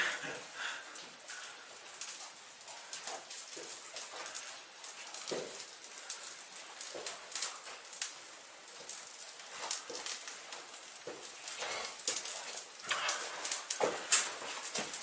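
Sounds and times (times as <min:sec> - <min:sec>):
footsteps on rocky cave floor: 0:08.8 - 0:15.0.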